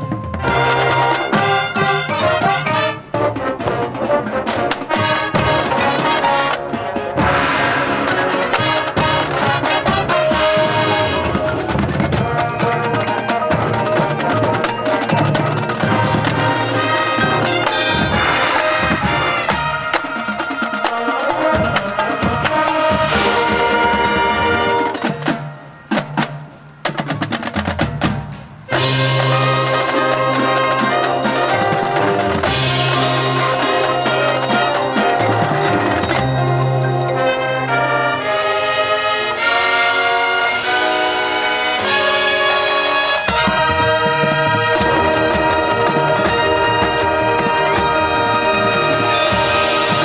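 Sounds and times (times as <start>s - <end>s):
drums: 0.0s - 50.0s
marching band brass: 0.0s - 50.0s
mallet percussion: 8.3s - 20.1s, 28.7s - 38.4s, 43.3s - 50.0s.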